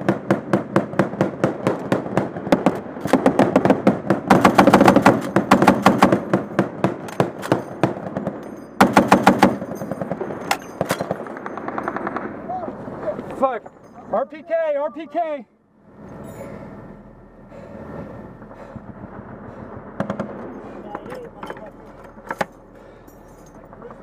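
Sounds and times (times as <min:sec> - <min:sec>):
heavy machine gun automatic fire: 0:00.0 - 0:12.5, 0:18.9 - 0:21.3.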